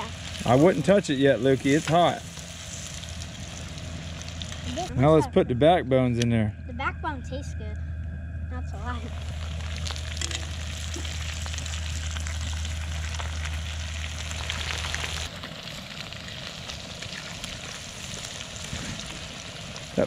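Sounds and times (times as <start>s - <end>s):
fish deep-frying with crackling: 0.0s - 4.9s, 9.1s - 20.0s
low steady hum: 0.0s - 20.0s.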